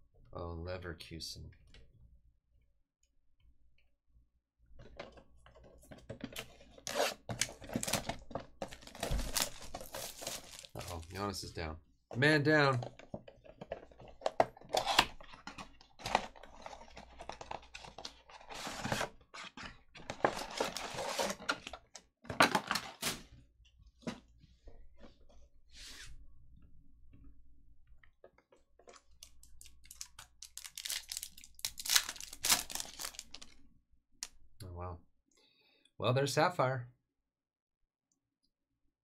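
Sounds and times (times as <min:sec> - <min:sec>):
cardboard box opening and rustling: 0:06.0 - 0:11.0, 0:13.0 - 0:23.2
foil wrapper tearing: 0:09.2 - 0:11.1, 0:29.6 - 0:33.5.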